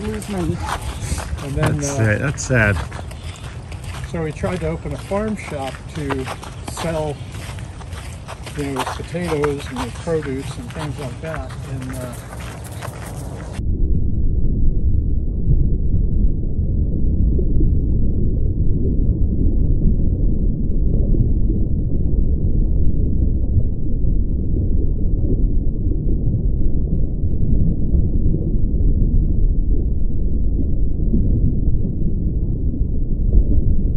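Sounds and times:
deep rumble: 0:00.0 - 0:33.9.

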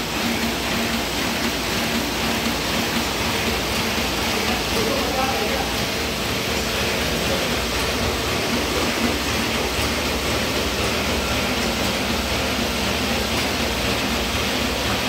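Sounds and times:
printing press whirring and clattering: 0:00.0 - 0:15.0.

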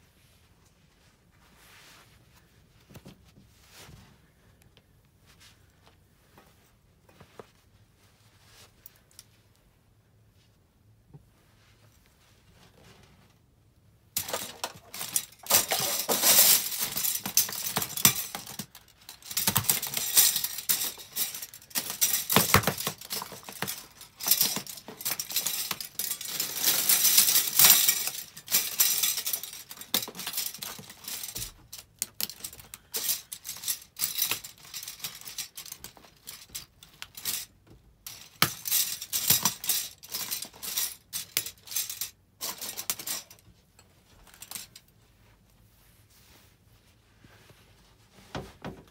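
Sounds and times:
plastic spoons crushed underfoot: 0:14.2 - 0:37.3.

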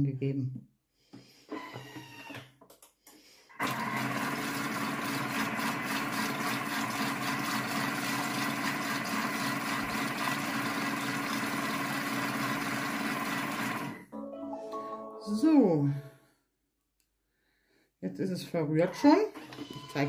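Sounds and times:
kitchen mixer motor running: 0:03.5 - 0:14.0.

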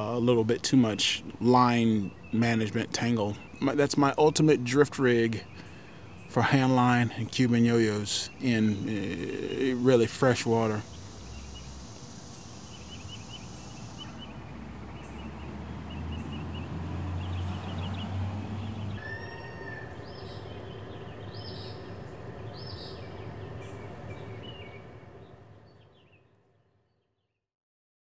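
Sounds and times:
small birds chirping: 0:00.0 - 0:27.3
low steady rumble: 0:19.4 - 0:26.1.

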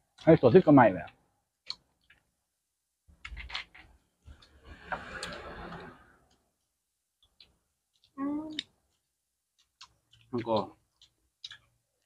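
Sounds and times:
person chewing: 0:01.6 - 0:02.4, 0:03.1 - 0:06.6, 0:07.2 - 0:12.0.

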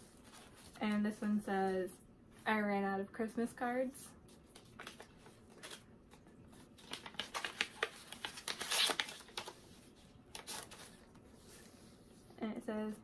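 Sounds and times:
paper envelope rustling: 0:04.3 - 0:11.8.

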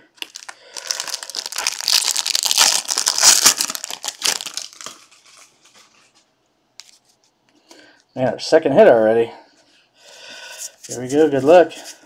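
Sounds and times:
foil wrapper crinkling: 0:00.2 - 0:05.8.

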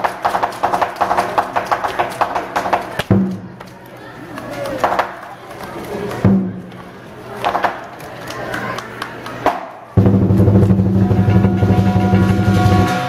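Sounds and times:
drum strikes: 0:00.0 - 0:03.6, 0:06.2 - 0:06.8, 0:09.5 - 0:13.0
cymbal strikes: 0:10.0 - 0:13.0
fast drum roll: 0:10.0 - 0:13.0.

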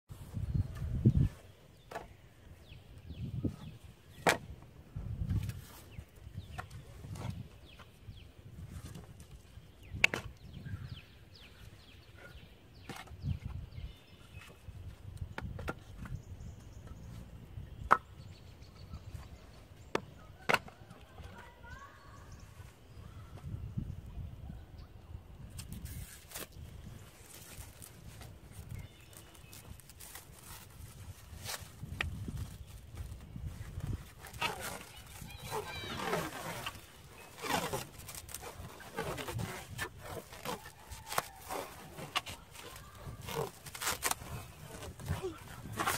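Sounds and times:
plastic wrap crinkling: 0:27.1 - 0:45.9
stretching film squeaks: 0:33.8 - 0:45.9.

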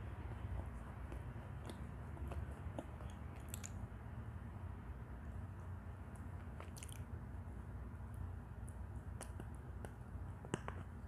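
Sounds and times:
steady low hum: 0:00.0 - 0:11.0
soft squishes: 0:00.1 - 0:04.0, 0:05.5 - 0:07.5
sharp clicks while chewing: 0:01.6 - 0:03.8, 0:06.2 - 0:07.1, 0:09.2 - 0:10.8.

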